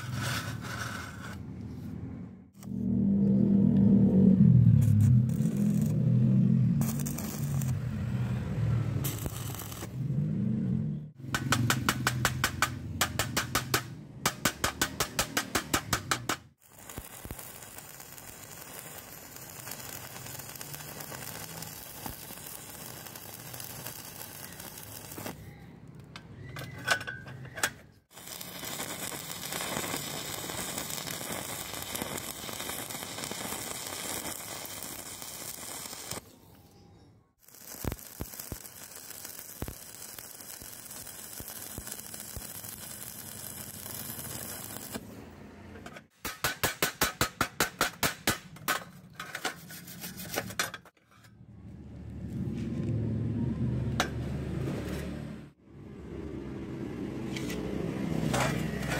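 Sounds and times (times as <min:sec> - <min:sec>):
welding arc burning: 0:04.7 - 0:25.4, 0:28.1 - 0:36.3, 0:37.4 - 0:45.2.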